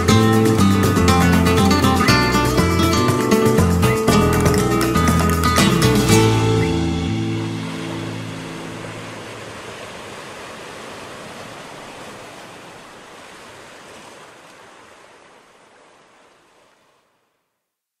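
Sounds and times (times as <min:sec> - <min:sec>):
steady rushing noise: 0:07.0 - 0:11.1.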